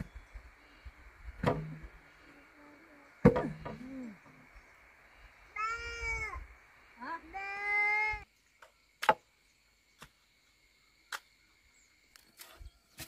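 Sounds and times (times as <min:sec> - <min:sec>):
sharp wooden knocks: 0:01.4 - 0:01.8.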